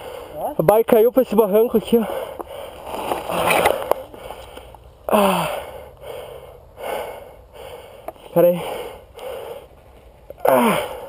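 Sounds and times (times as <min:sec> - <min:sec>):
man breathing hard: 0:00.0 - 0:00.6, 0:01.8 - 0:11.0
man groaning: 0:05.1 - 0:05.7, 0:10.4 - 0:11.0.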